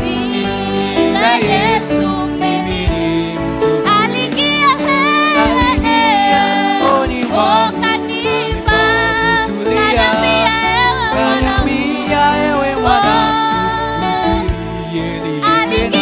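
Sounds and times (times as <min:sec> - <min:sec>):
woman singing gospel: 0:00.0 - 0:03.0, 0:03.8 - 0:16.0
backing voices singing: 0:00.0 - 0:16.0
instrumental backing: 0:00.0 - 0:16.0.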